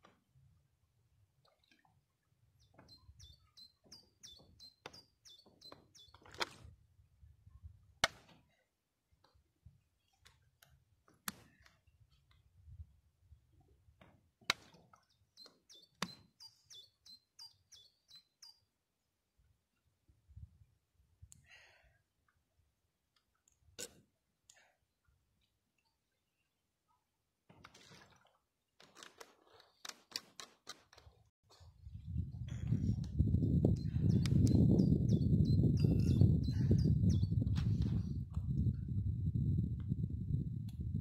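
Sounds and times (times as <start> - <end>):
songbird singing high falling notes: 2.6 - 6.2, 15.3 - 18.7, 32.5 - 37.5.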